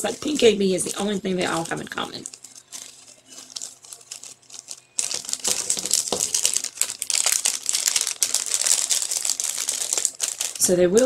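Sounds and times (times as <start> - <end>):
plastic packets crinkling: 0.0 - 11.0.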